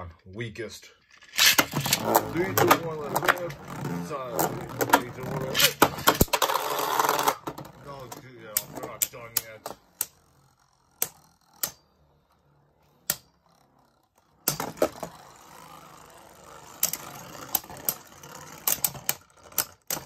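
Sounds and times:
plastic tops clacking: 1.1 - 10.1
spinning tops whirring rasp: 1.1 - 20.0.

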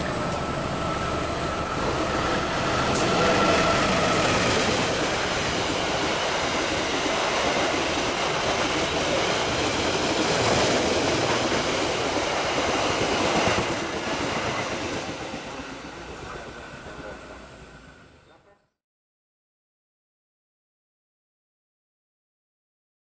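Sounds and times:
train wheels rumbling on rails: 0.0 - 18.4.

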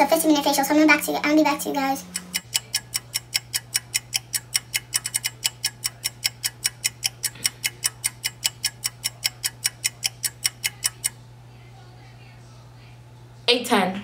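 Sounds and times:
clock ticking: 0.0 - 11.2
faint steady hum: 0.0 - 14.0.

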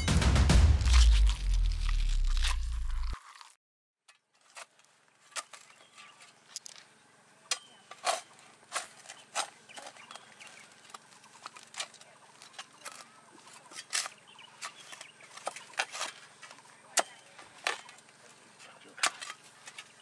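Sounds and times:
spade crunching into soil: 0.8 - 3.5.

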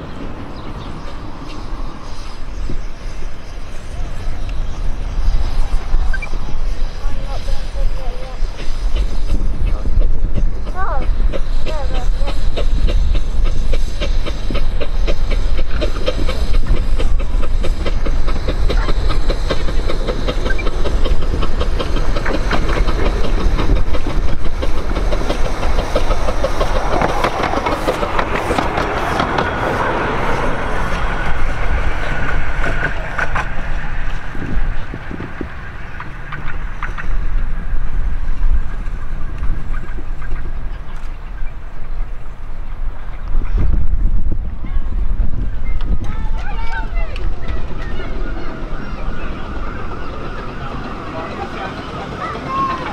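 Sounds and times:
miniature steam train passing: 0.0 - 52.9
wheels clicking over rail joints: 7.1 - 43.9, 45.7 - 52.9.

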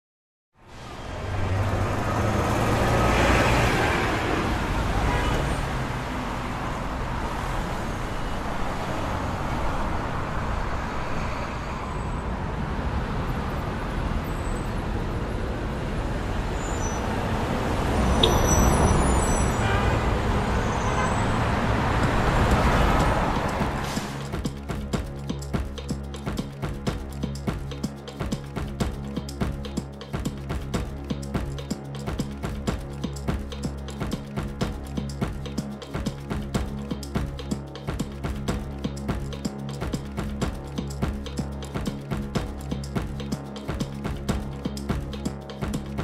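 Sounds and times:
wet road noise hiss: 21.8 - 24.4.

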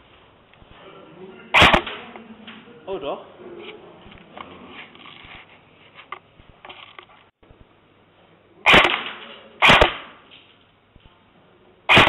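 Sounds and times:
loud sharp bang: 1.6 - 2.1, 8.7 - 10.2.

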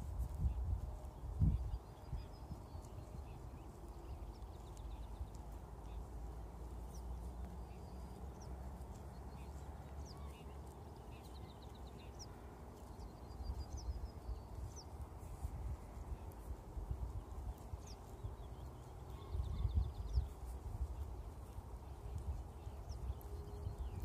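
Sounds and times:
small birds chirping: 0.0 - 24.0
steady low rumble: 0.0 - 24.0
horse tearing and chewing grass: 2.8 - 13.2, 20.2 - 24.0.

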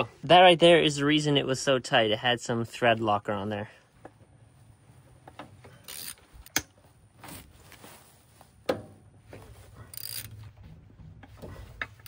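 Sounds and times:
tools and bolts clicking: 5.7 - 6.7, 9.9 - 10.5.

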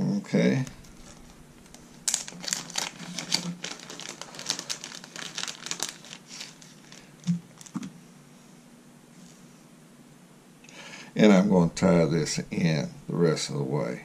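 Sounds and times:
plastic bag crinkling: 0.6 - 7.9.

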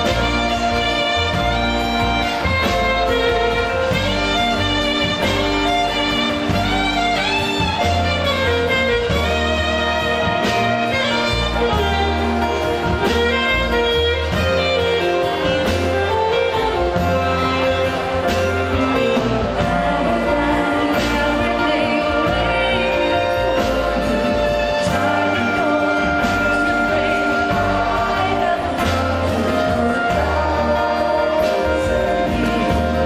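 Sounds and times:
acoustic guitar: 0.0 - 33.0
double bass: 0.0 - 33.0
keyboard: 0.0 - 33.0
saxophone: 0.0 - 33.0
people singing: 15.2 - 33.0.

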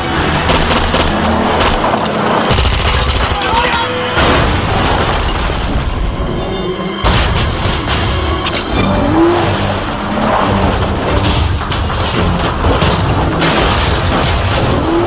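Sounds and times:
car engine noise: 0.0 - 4.8, 7.6 - 15.0
dramatic orchestral score: 0.0 - 15.0
loud car crash: 4.1 - 6.0, 7.0 - 9.2, 10.3 - 15.0
booming impacts: 7.0 - 8.4.

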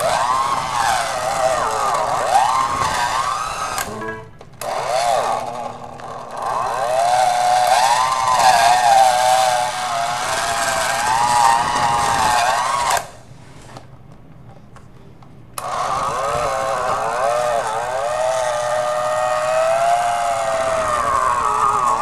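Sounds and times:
electric hand mixer whining: 4.6 - 13.1, 15.6 - 22.0.

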